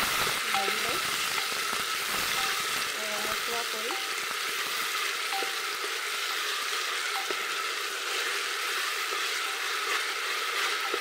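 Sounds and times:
onions sizzling in oil: 0.0s - 11.0s
spatula tapping pot: 3.8s - 4.3s, 5.2s - 6.0s, 7.1s - 7.6s.

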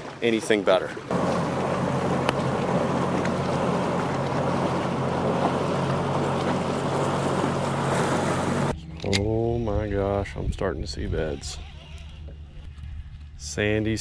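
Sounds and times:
wind and water rushing: 0.0s - 8.7s
outboard motor hum: 0.0s - 9.2s.

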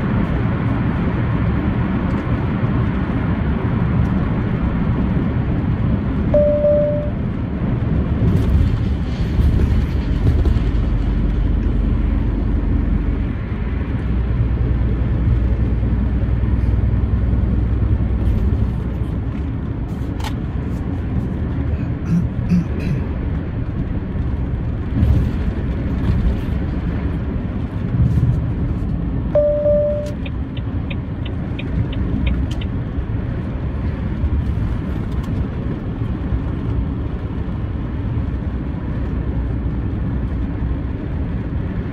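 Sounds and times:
truck engine and road rumble: 0.0s - 41.9s
short beep: 6.4s - 7.2s, 29.4s - 30.3s.

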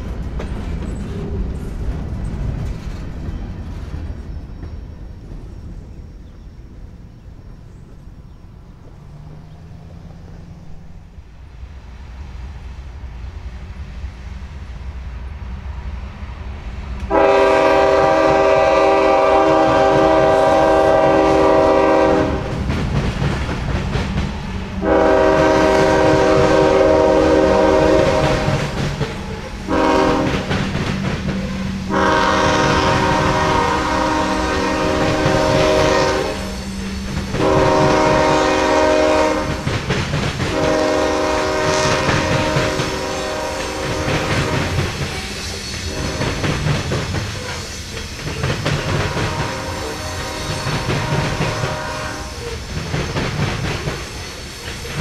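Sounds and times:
locomotive rumble: 0.0s - 55.0s
train air horn: 17.0s - 22.7s, 24.7s - 30.7s, 31.4s - 39.7s, 40.5s - 46.6s, 48.8s - 52.6s.

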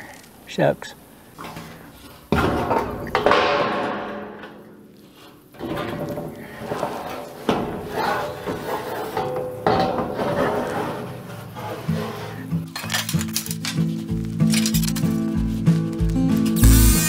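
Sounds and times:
metal roofing sheet rattling: 1.4s - 15.8s
loud metal clanks: 2.3s - 11.6s.

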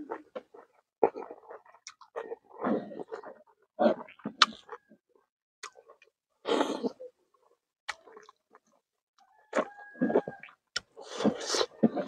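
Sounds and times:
wet chewing and lip-smacking: 0.0s - 5.0s, 5.6s - 6.1s, 7.9s - 12.0s.

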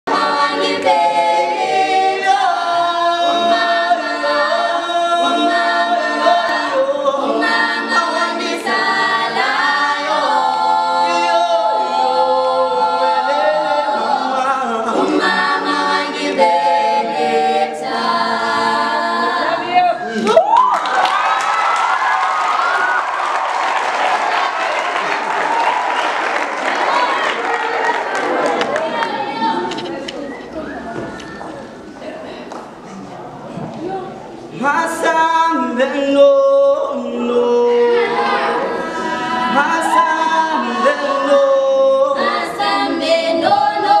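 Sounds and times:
group singing a cappella: 0.1s - 20.4s, 34.4s - 44.0s.

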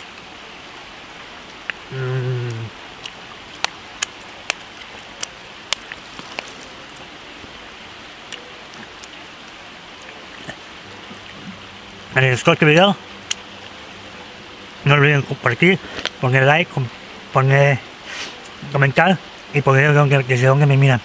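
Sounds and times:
river flowing: 0.0s - 21.0s
man humming: 1.9s - 2.8s.

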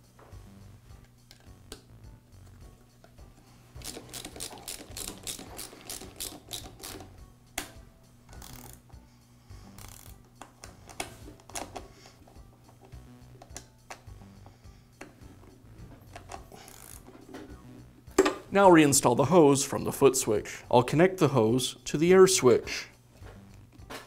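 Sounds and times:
socket ratchet clicking: 3.8s - 8.9s, 9.7s - 11.8s, 16.1s - 17.1s.

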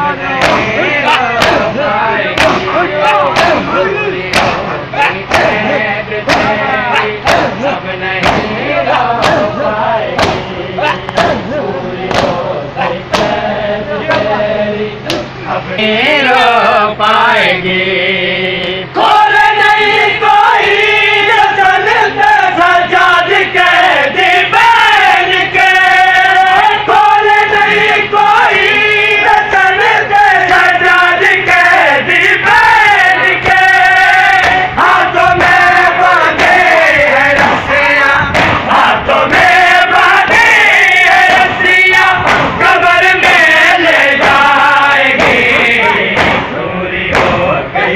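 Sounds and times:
men chanting in unison: 0.0s - 47.9s
chest-beating slaps: 0.4s - 0.8s, 1.4s - 1.7s, 2.4s - 3.7s, 4.3s - 4.7s, 6.3s - 7.6s, 8.2s - 8.6s, 9.2s - 9.6s, 10.2s - 11.5s, 12.1s - 12.4s, 13.1s - 13.4s, 15.0s - 15.4s, 34.4s - 34.7s, 37.3s - 37.7s, 38.3s - 38.8s, 42.2s - 42.6s, 45.2s - 47.4s.

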